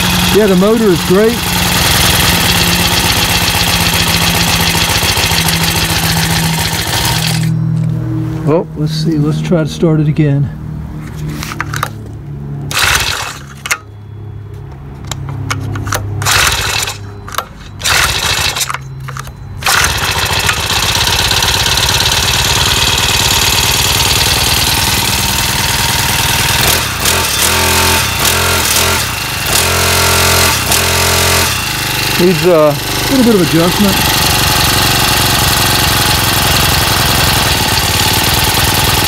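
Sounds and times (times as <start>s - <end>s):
engine pull-starter pulls: 0.0s - 7.6s, 11.1s - 13.9s, 15.0s - 39.0s
small engine running: 0.0s - 7.7s, 12.7s - 13.9s, 15.8s - 39.0s
man talking: 0.3s - 1.4s, 8.4s - 10.6s, 32.2s - 34.1s.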